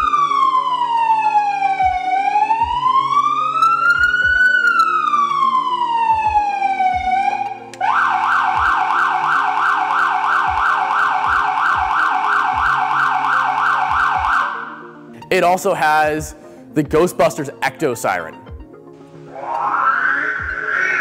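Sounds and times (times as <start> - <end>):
electronic siren wailing and yelping: 0.0 - 14.9, 19.2 - 21.0.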